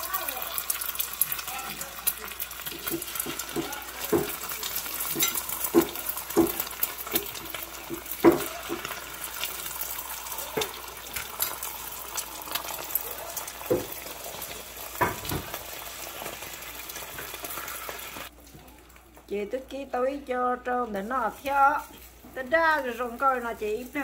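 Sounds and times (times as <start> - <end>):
eggs sizzling in a frying pan: 0.0 - 24.0
spatula knocking and scraping pan: 2.6 - 9.1, 15.0 - 15.6.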